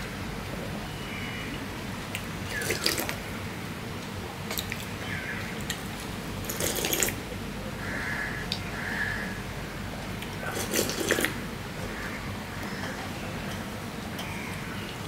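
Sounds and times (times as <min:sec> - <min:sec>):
person slurping soup: 0:06.4 - 0:07.2, 0:10.4 - 0:11.4.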